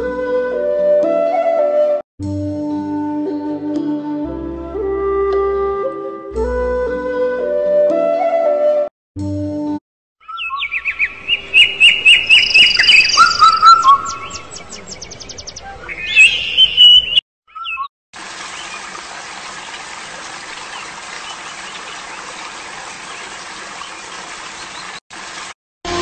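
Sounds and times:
birds singing: 0:10.2 - 0:25.0
hiss of water: 0:18.2 - 0:26.0.

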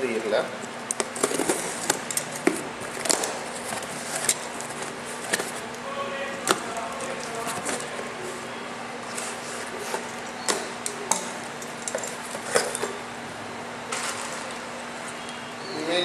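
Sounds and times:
cardboard rustling and scraping: 0:01.1 - 0:05.7, 0:06.4 - 0:08.4, 0:09.0 - 0:10.2.

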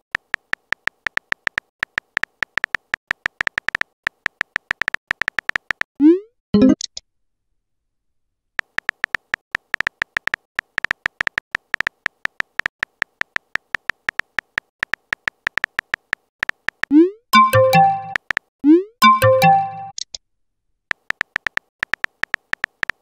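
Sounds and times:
keyboard key clicks: 0:00.2 - 0:05.9, 0:08.6 - 0:16.9, 0:20.9 - 0:23.0.

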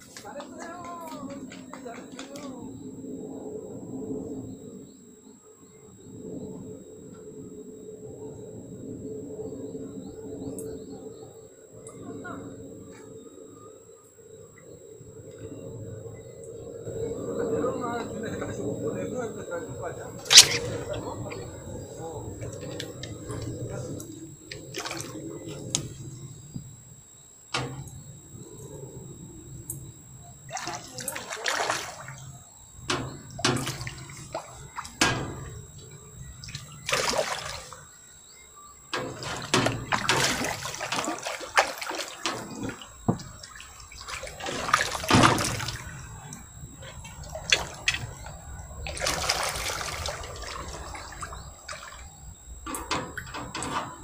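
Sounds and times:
fish splashing in water: 0:20.2 - 0:21.8, 0:24.5 - 0:25.5, 0:30.4 - 0:38.0, 0:39.0 - 0:53.6.

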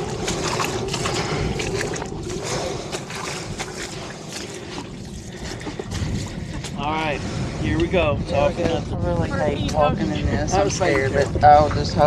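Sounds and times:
splashing steps wading: 0:00.0 - 0:08.0
wind buffeting microphone: 0:00.0 - 0:12.0.

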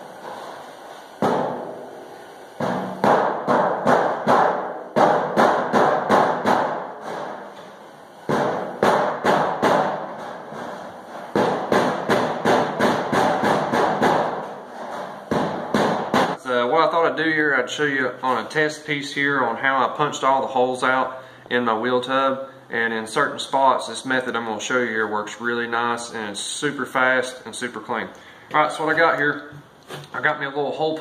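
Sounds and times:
rubber mallet tapping sheet metal: 0:02.6 - 0:07.4, 0:08.3 - 0:10.6, 0:11.3 - 0:14.6.

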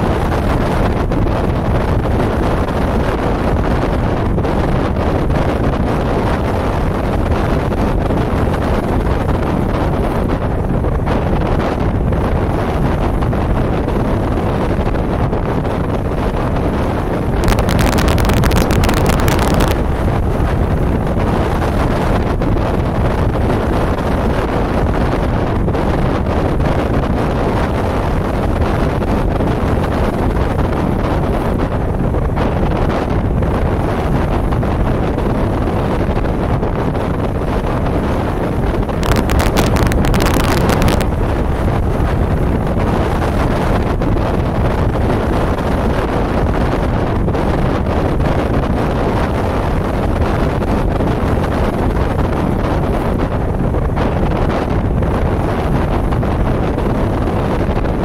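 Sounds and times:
wind buffeting microphone: 0:00.0 - 0:58.0
waves washing against rocks: 0:17.4 - 0:19.8, 0:39.0 - 0:41.2.

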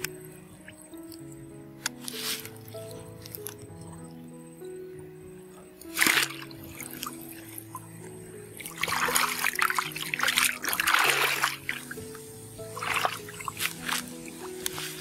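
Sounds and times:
background music with held notes: 0:00.0 - 0:15.0
water splashing: 0:05.7 - 0:15.0.

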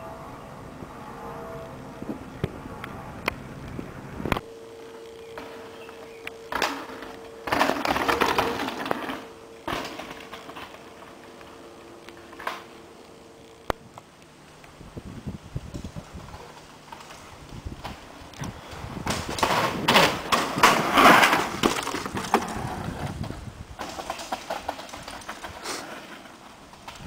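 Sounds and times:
tyres crunching and skidding on dirt: 0:04.2 - 0:13.8, 0:15.7 - 0:27.0
bike rattling and knocking: 0:06.5 - 0:11.1, 0:15.7 - 0:27.0.

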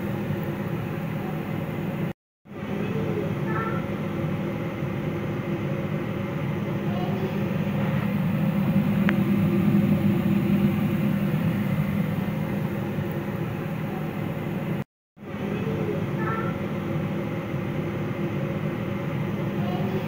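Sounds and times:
low rumble: 0:07.3 - 0:14.8.

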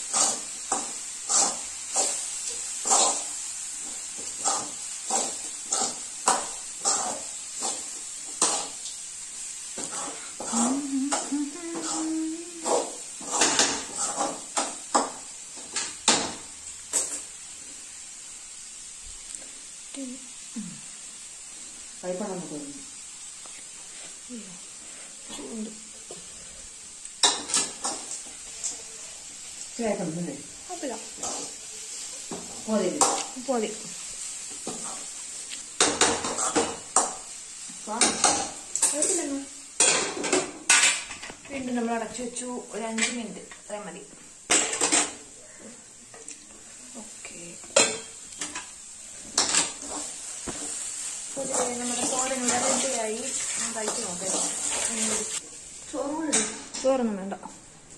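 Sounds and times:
light sizzle: 0:00.0 - 0:57.9
spoon scraping in a steel pan: 0:09.8 - 0:15.1, 0:51.4 - 0:55.4
metal spoon scraping steel pan: 0:51.4 - 0:55.4.

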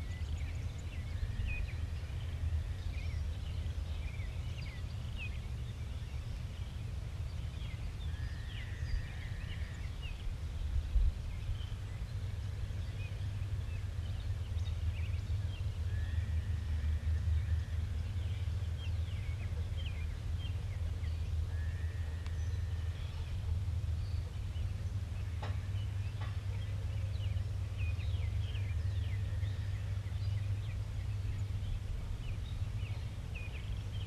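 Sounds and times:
birds chirping: 0:00.0 - 0:34.0
steady low rumble: 0:00.0 - 0:34.0.

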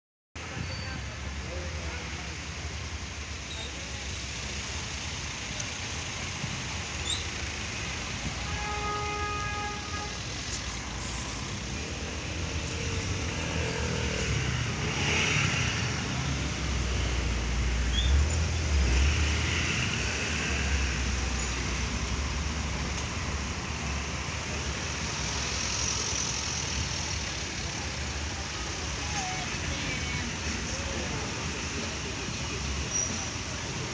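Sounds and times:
street traffic noise: 0:00.4 - 0:33.9.

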